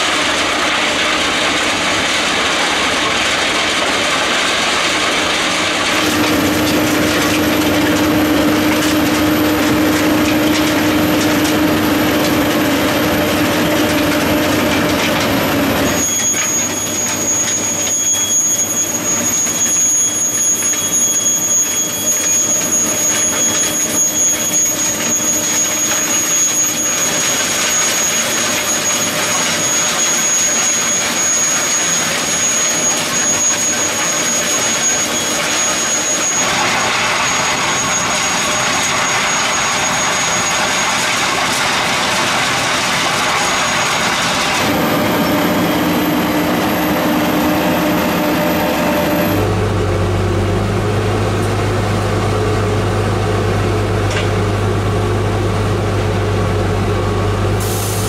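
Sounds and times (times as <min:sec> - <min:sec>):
track maintenance machine working: 0:00.0 - 0:58.0
steady high whine: 0:05.6 - 0:24.7, 0:35.2 - 0:58.0.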